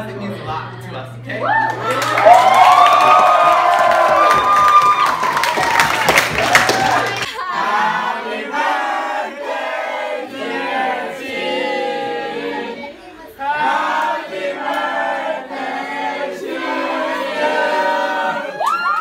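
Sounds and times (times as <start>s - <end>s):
group of voices singing: 7.3s - 18.6s.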